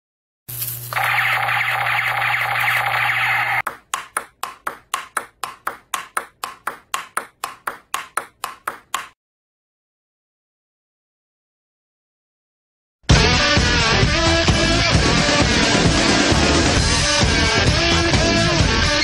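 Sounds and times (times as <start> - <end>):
table tennis ball clicking: 3.6 - 9.2.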